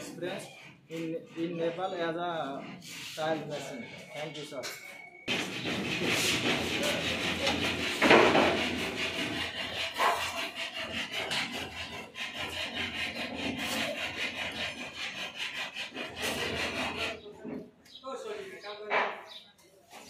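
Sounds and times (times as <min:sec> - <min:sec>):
trowel scraping wet mortar: 0:05.4 - 0:17.3.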